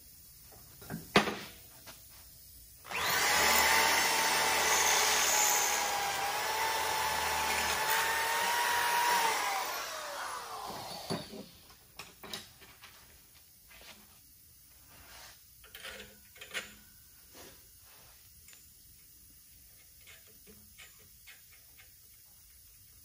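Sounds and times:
electric drill whining: 2.9s - 11.6s.

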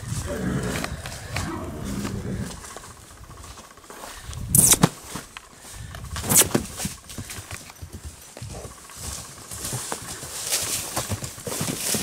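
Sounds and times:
horse moving over grass: 0.0s - 12.0s
short loud noisy bursts: 4.5s - 5.0s.

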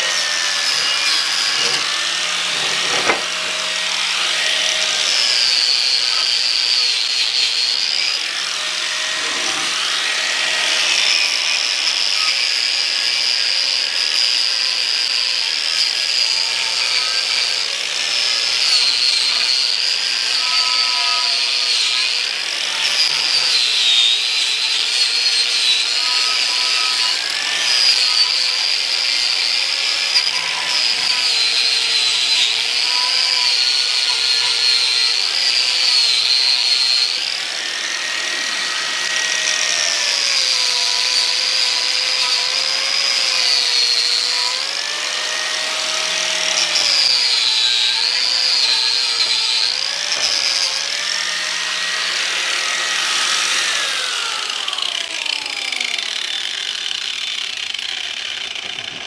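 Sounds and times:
angle grinder whining on metal: 0.0s - 59.0s.

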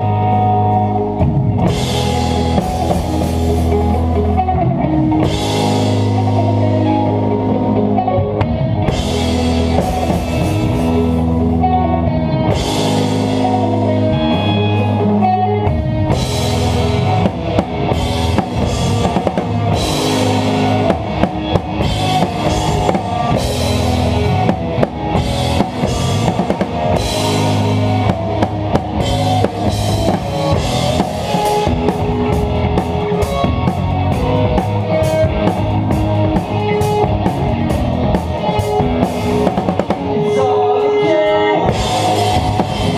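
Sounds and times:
live rock band: 0.0s - 42.9s
fast drum strikes: 16.1s - 40.2s, 41.7s - 42.9s.

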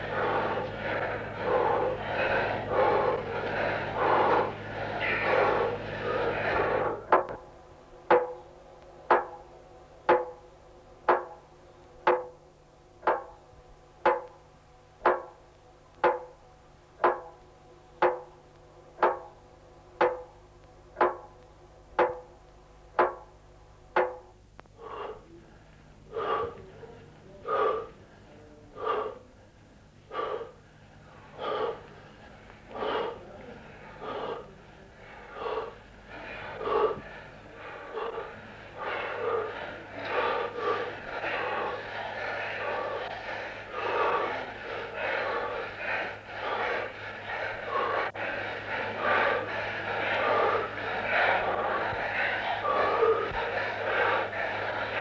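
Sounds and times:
heavy gasping breaths: 0.0s - 7.4s, 24.7s - 55.0s
dense rushing noise with hum: 0.0s - 8.2s, 30.1s - 55.0s.

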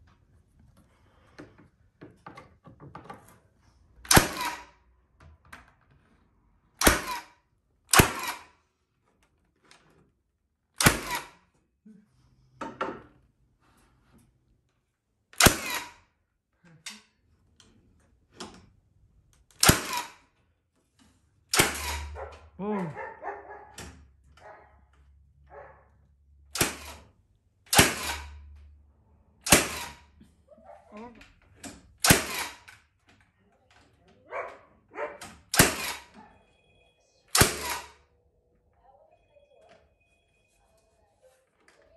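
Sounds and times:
nailer firing nails into wood: 4.0s - 4.8s, 6.8s - 8.6s, 10.8s - 11.6s, 15.4s - 16.1s, 19.5s - 20.3s, 21.5s - 22.2s, 26.5s - 27.1s, 27.7s - 28.5s, 29.4s - 30.1s, 31.6s - 32.9s, 35.5s - 36.1s, 37.3s - 38.0s.

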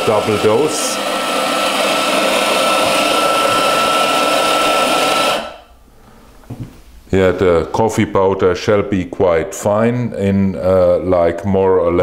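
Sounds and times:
coffee grinder grinding with whine: 0.0s - 5.6s.

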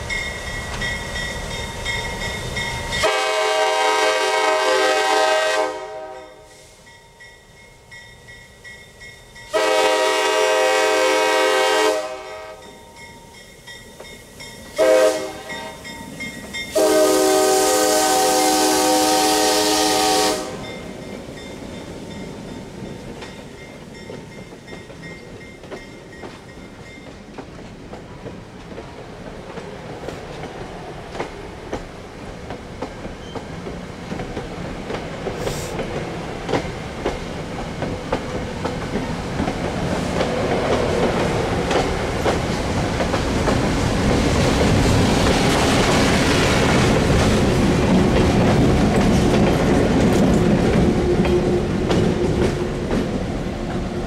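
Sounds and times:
locomotive air horn blasts: 3.0s - 6.5s, 9.5s - 12.6s, 14.8s - 15.8s, 16.7s - 20.7s
train wheels clicking over rail joints: 20.7s - 54.0s.

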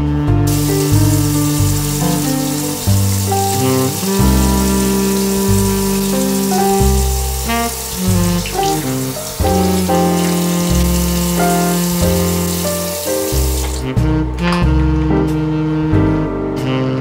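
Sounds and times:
background music: 0.0s - 17.0s
water running from sink tap: 0.5s - 14.0s.

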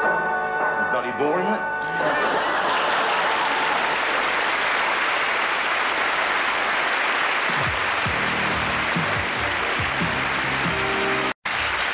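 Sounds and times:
audience applauding: 1.8s - 11.9s
theme music with plucked bass: 7.7s - 11.3s.

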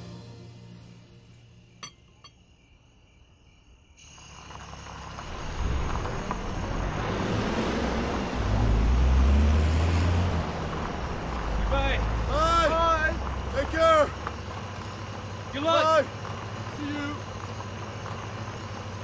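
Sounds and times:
outdoor noise: 0.0s - 19.0s
cup clinking on saucer: 1.8s - 2.4s
heavy truck engine rumble: 4.3s - 19.0s.

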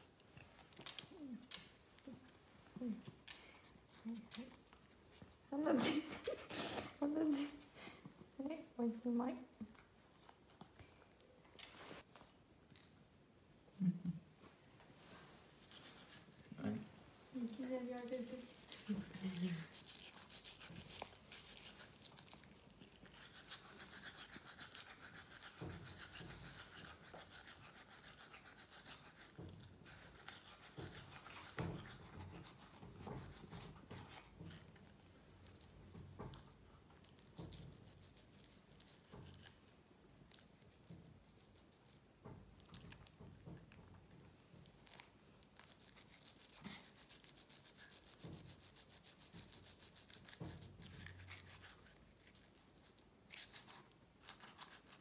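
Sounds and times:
toothbrush scrubbing teeth: 15.6s - 16.3s, 17.4s - 39.6s, 40.2s - 42.1s, 44.7s - 55.0s.

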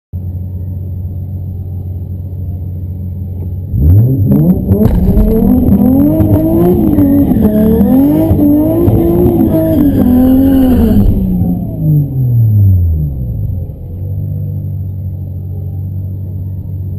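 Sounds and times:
car engine revving through gears: 3.7s - 13.8s.

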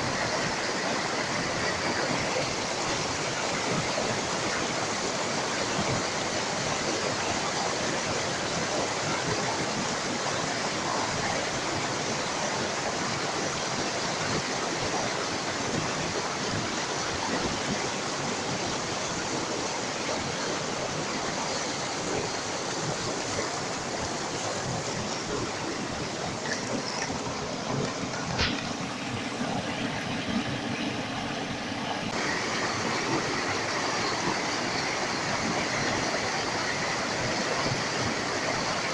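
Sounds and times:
stream rushing over boulders: 0.0s - 38.9s.

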